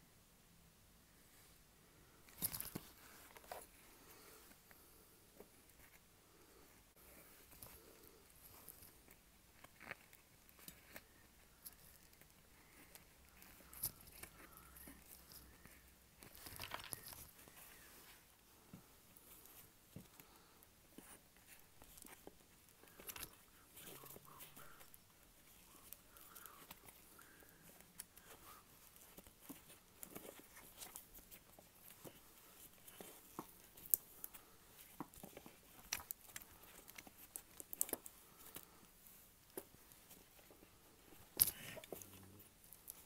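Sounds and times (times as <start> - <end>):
cloth gloves rustling: 2.2 - 43.0
electrical tape crackling and peeling: 7.4 - 17.7, 21.0 - 43.0.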